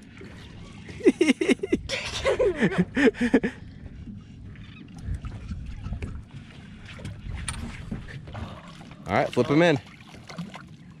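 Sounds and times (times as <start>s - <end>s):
water sloshing against boat hull: 0.0s - 11.0s
wind on microphone: 0.3s - 8.8s.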